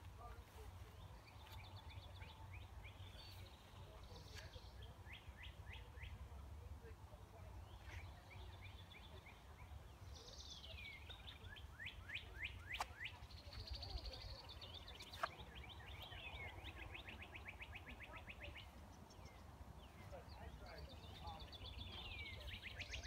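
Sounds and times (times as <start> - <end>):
songbirds singing: 0.0 - 23.0.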